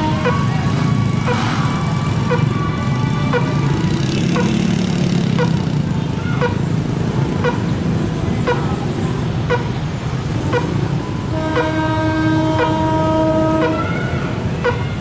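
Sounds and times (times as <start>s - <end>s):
train horn: 0.0s - 1.5s, 10.5s - 14.8s
motorbike engines idling: 0.0s - 15.0s.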